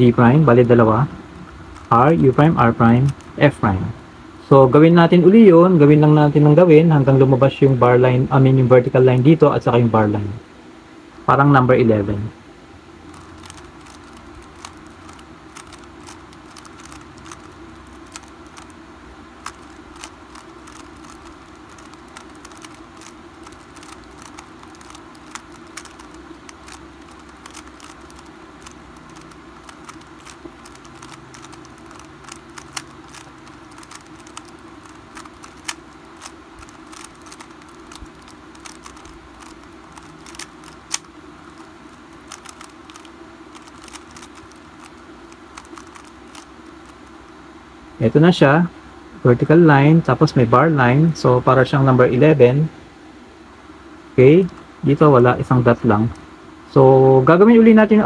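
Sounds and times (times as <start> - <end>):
steady low hum: 0.0 - 58.0
puzzle cube layers clicking: 1.7 - 3.4, 13.1 - 18.8, 19.4 - 47.1.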